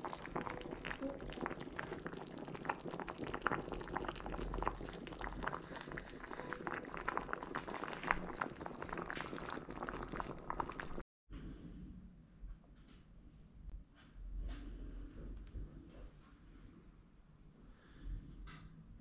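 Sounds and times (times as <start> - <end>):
stew bubbling at a simmer: 0.0 - 11.0.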